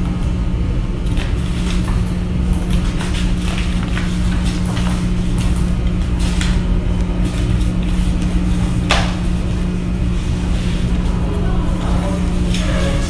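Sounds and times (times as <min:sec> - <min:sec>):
low hum: 0:00.0 - 0:13.0
paper rustling: 0:01.0 - 0:11.1.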